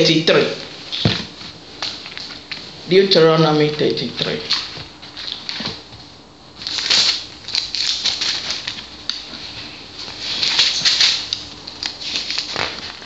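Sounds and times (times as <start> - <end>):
pages flicking and rustling: 6.6 - 13.0.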